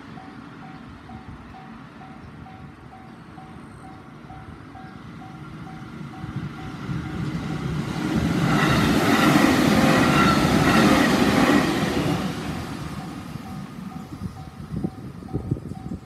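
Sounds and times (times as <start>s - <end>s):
level crossing warning bell: 0.0s - 7.0s
electric train rumbling past: 0.0s - 16.0s.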